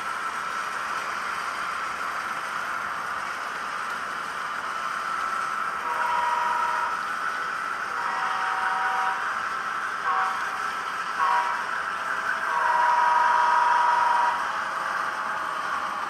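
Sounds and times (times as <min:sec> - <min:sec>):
model train rolling on track: 0:00.0 - 0:16.0
model train horn blasts: 0:05.8 - 0:07.0, 0:07.9 - 0:09.2, 0:10.0 - 0:10.6, 0:11.2 - 0:11.6, 0:12.5 - 0:14.4.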